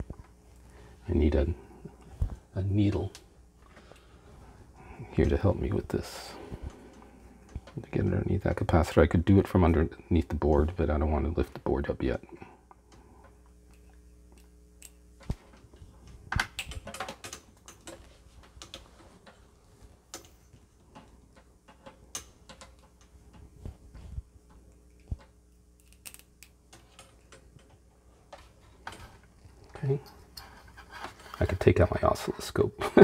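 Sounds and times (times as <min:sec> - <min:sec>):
small clicks and taps: 0:12.7 - 0:19.4, 0:20.1 - 0:23.5.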